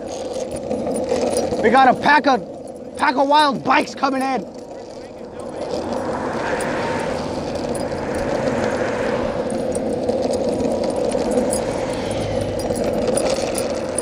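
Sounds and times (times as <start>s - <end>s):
harness and leash jingling: 0.0s - 14.0s
rushing noise of moving along path: 0.0s - 14.0s.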